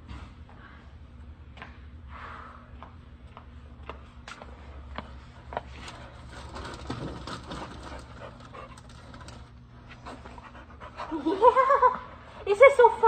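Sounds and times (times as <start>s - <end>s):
soft footsteps: 2.7s - 6.2s
dog panting: 7.5s - 11.6s.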